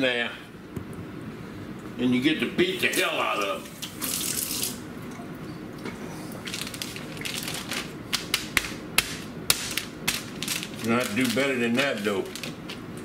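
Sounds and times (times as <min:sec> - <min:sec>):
plastic wrap crinkling: 0:06.3 - 0:13.0.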